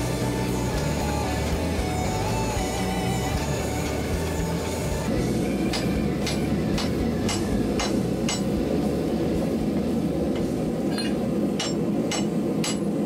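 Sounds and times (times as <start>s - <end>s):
steady low rumble: 3.9s - 13.0s
hammer striking metal on anvil: 5.6s - 8.7s, 10.3s - 13.0s.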